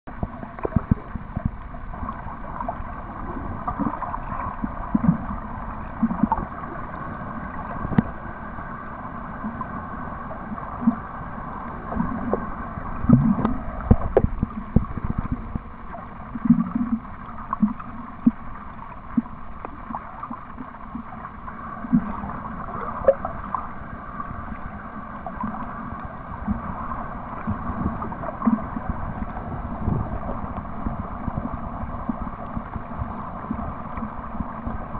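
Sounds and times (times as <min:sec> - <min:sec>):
low underwater gurgles: 0:00.1 - 0:34.9
muffled underwater wash: 0:00.1 - 0:34.9.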